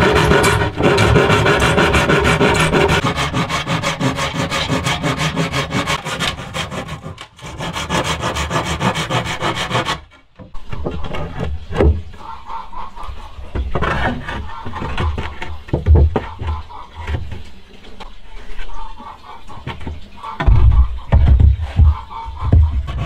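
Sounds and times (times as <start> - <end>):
handsaw sawing wood: 0.0 - 10.2, 21.7 - 23.0.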